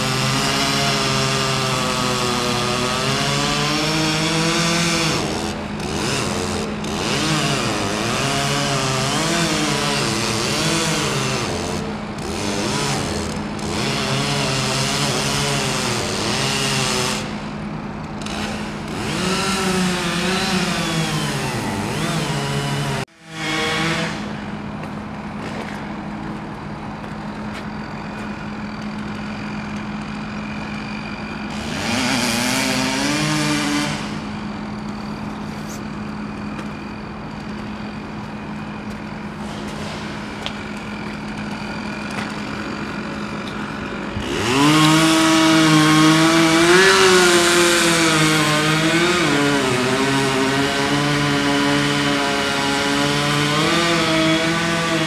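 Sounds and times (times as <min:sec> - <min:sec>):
chainsaw revving: 0:00.0 - 0:24.7, 0:27.9 - 0:55.0
excavator engine idling: 0:24.0 - 0:32.0, 0:34.1 - 0:45.3.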